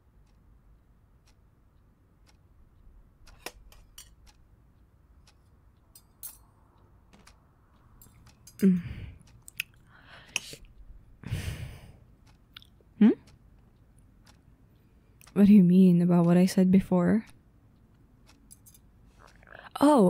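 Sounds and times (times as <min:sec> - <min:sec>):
faint clicks and taps: 0:03.2 - 0:10.9
woman breathing: 0:08.6 - 0:10.6, 0:11.2 - 0:12.0.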